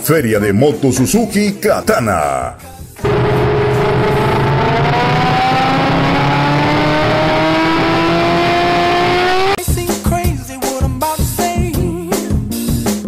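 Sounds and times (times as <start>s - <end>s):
motorcycle engine accelerating: 3.0s - 9.6s.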